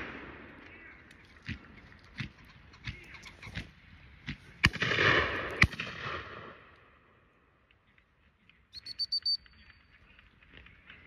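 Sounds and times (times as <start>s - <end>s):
shotgun shot: 0.0s - 0.6s, 4.6s - 6.7s
dog whistle short pips: 8.8s - 9.6s.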